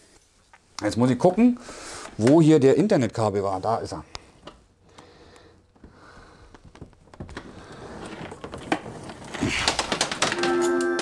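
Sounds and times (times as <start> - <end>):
cables rustling and clicking: 4.1 - 11.0.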